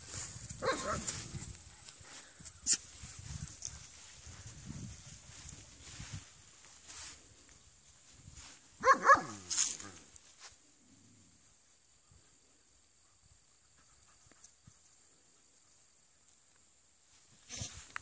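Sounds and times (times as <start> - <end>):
dog barking: 0.6 - 1.1, 8.8 - 9.4.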